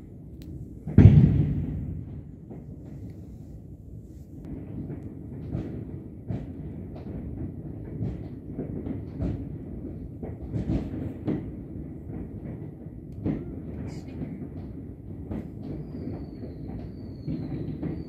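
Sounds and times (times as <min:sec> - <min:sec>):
sharp firework bangs: 0:00.8 - 0:02.6
fireworks exploding: 0:00.8 - 0:03.0, 0:04.5 - 0:18.0.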